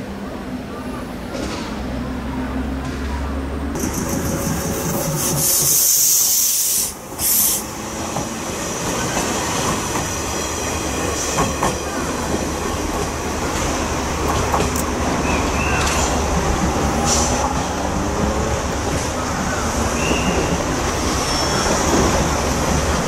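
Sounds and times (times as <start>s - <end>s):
electric train passing: 0.0s - 23.0s
loud hiss: 4.2s - 7.8s.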